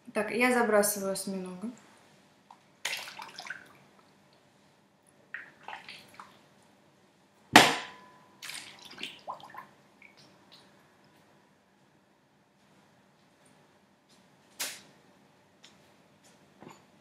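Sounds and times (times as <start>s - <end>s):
wet squelches and splashes: 2.8s - 4.2s, 5.3s - 6.6s, 8.4s - 10.8s.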